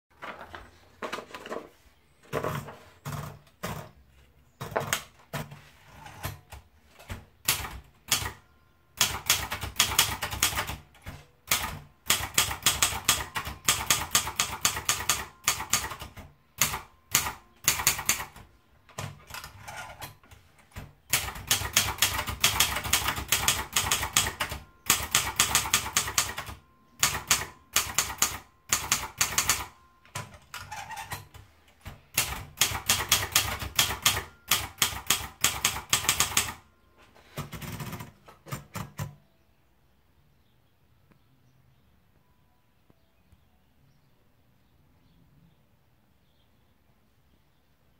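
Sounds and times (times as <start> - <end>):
manual typewriter key strikes: 6.1 - 8.4, 9.0 - 36.6, 37.4 - 39.2.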